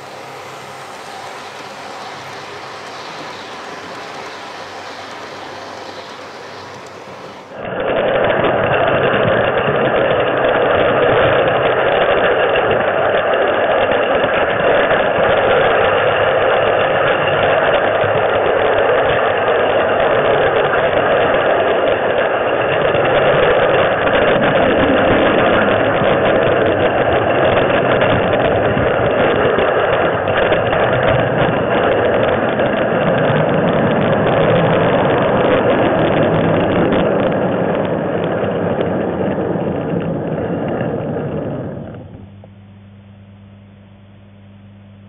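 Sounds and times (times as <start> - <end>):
model train motor whirring: 0.0 - 7.6
model train rumbling on track: 0.0 - 42.0.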